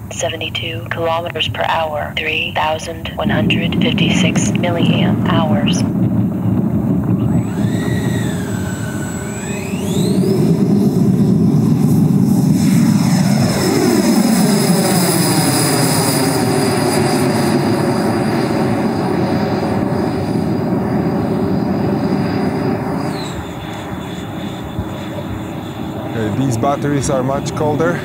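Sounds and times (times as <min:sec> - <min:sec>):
electric ducted fan whine: 0:00.0 - 0:14.6.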